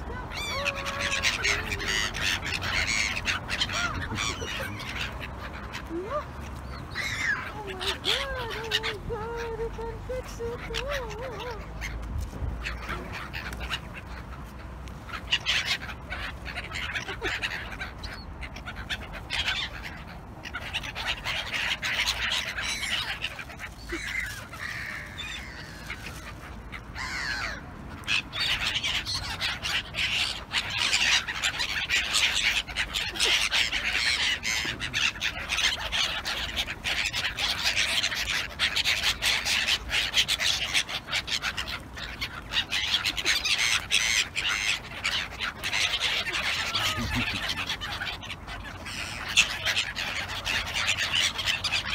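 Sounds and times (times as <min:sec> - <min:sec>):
gulls calling and squawking: 0:00.0 - 0:51.9.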